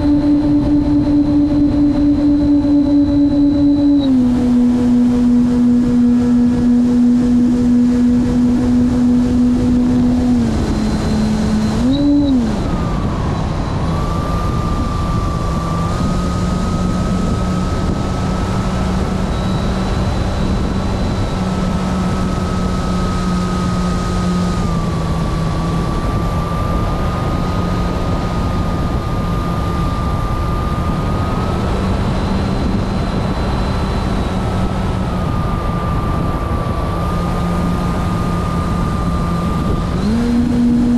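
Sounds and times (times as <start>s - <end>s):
model airplane motor droning: 0.0s - 40.9s
thin high whine: 0.0s - 40.9s
wind rushing: 0.0s - 40.9s.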